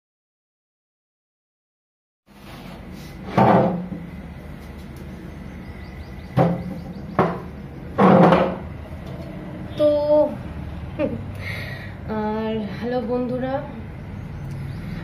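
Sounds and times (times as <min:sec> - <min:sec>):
wooden chair scraping: 0:02.3 - 0:03.9
steady low hum: 0:02.3 - 0:15.0
chair knocks: 0:06.4 - 0:08.7.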